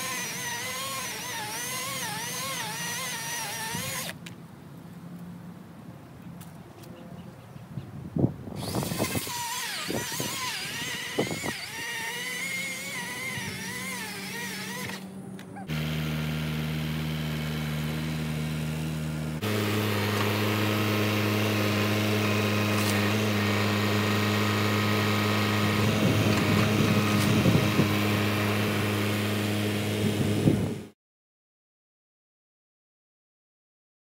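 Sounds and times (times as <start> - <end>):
tractor diesel engine running: 12.9 - 30.8.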